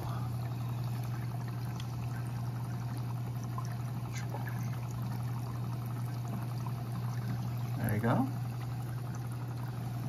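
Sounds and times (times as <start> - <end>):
pumps humming: 0.0 - 10.0
water trickling and splashing: 0.0 - 10.0.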